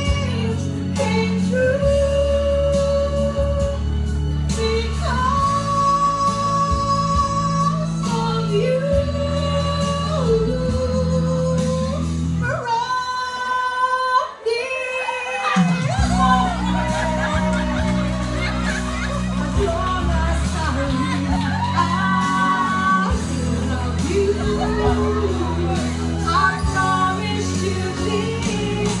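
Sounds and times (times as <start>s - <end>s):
steady bass line: 15.9s - 29.0s.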